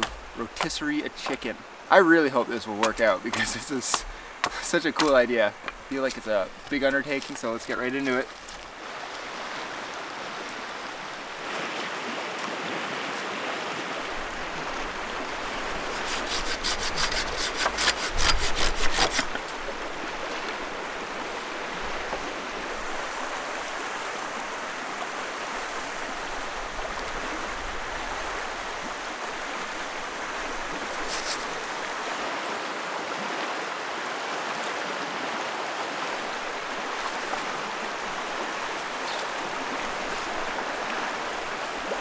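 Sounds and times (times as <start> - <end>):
blade chopping wooden stake: 0.0 - 1.5, 2.8 - 7.0, 15.9 - 19.5
river rushing: 0.0 - 42.0.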